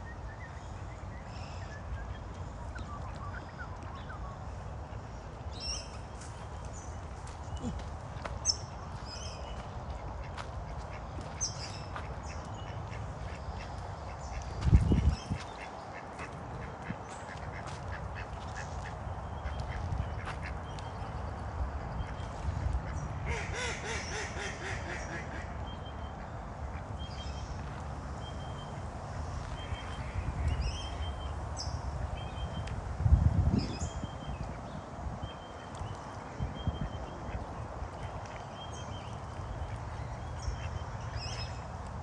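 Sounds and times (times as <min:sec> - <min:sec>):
ducks quacking: 0:09.6 - 0:20.7, 0:22.1 - 0:25.6.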